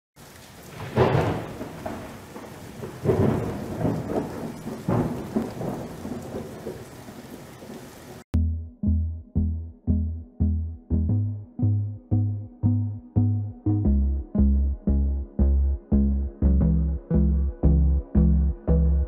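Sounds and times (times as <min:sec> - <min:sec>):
steady rain: 0:00.2 - 0:08.3
thunder rolling: 0:00.6 - 0:08.2.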